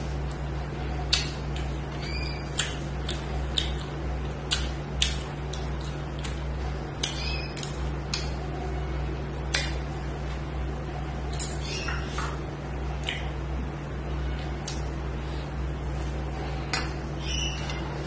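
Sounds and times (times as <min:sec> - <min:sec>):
steady low hum: 0:00.0 - 0:18.0
chewing with wet smacks: 0:00.2 - 0:08.4, 0:09.4 - 0:09.8, 0:12.9 - 0:13.4.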